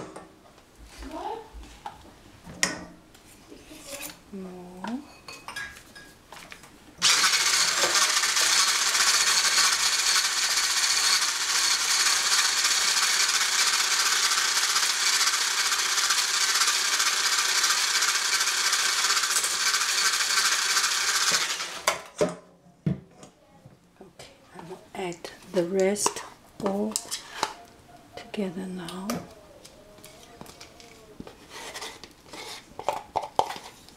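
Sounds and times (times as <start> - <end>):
electric hand blender whisking: 7.0 - 22.1.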